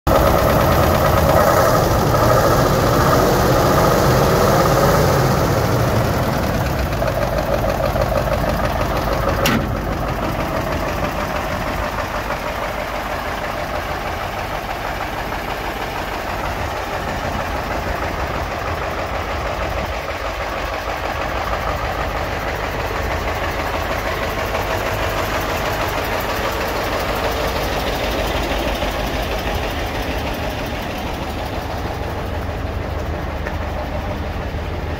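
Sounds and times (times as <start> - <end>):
truck diesel engine idling: 0.1 - 34.9.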